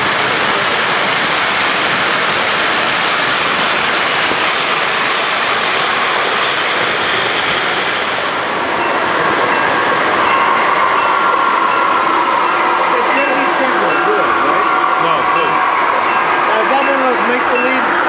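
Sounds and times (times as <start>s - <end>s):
model train wheels clattering on rails: 0.0s - 8.4s.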